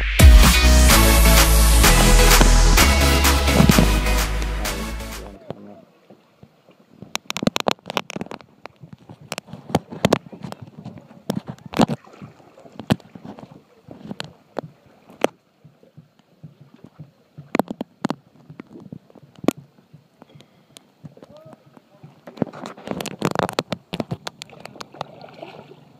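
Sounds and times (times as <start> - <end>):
water sloshing against hulls: 5.5 - 20.2, 20.9 - 25.9.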